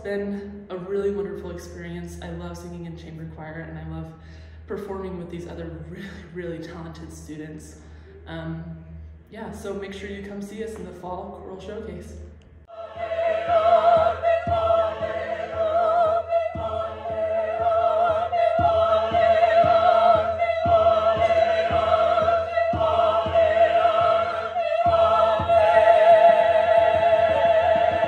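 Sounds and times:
choir singing slow piece: 0:12.6 - 0:28.0.

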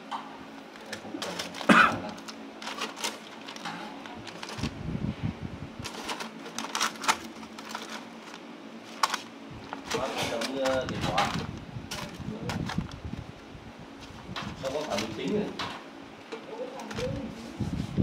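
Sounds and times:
steady low hum: 0:00.0 - 0:18.0
foil clicks and crinkles: 0:00.6 - 0:04.8, 0:05.8 - 0:13.2, 0:13.9 - 0:17.6.

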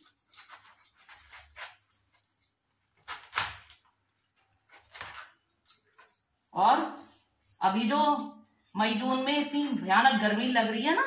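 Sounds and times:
knife cutting watermelon on board: 0:03.0 - 0:03.8.

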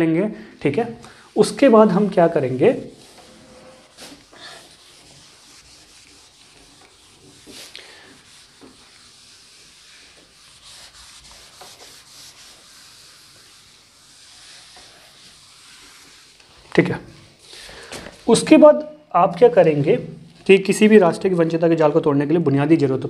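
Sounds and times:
pen scratching on paper: 0:03.0 - 0:16.4.

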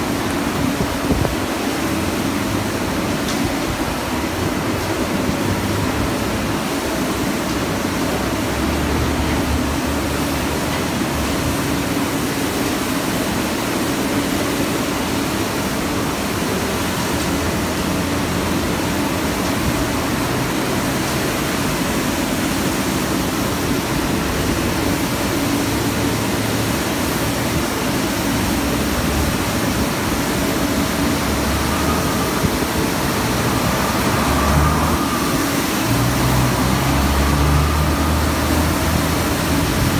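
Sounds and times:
street sweeper brooms rushing: 0:00.0 - 0:39.9
low engine hum: 0:16.2 - 0:39.9.

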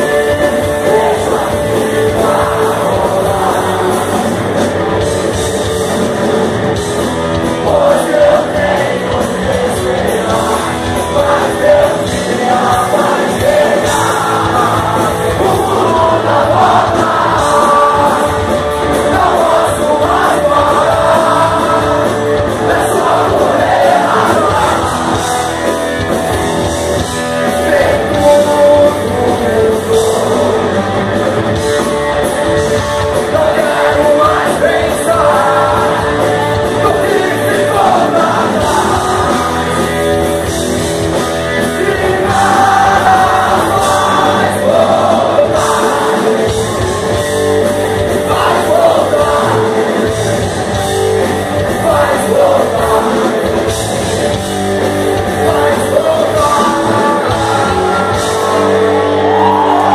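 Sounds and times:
person singing: 0:00.0 - 0:04.7, 0:07.6 - 0:25.5, 0:27.4 - 0:31.0, 0:33.1 - 0:40.3, 0:41.4 - 0:46.9, 0:48.0 - 0:50.2, 0:51.6 - 0:53.8, 0:55.2 - 0:59.9
bass guitar: 0:00.0 - 0:59.9
distorted electric guitars: 0:00.0 - 0:59.9
drums: 0:00.0 - 0:59.9.

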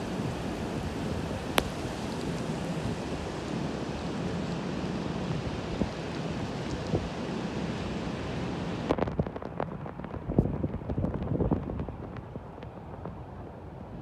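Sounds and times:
heavy rain hissing: 0:00.0 - 0:08.9.

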